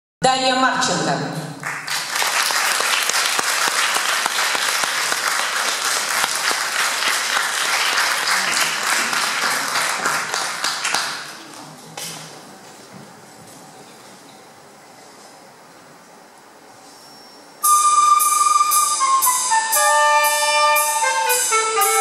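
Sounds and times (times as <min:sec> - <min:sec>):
audience applauding: 0:01.6 - 0:12.3.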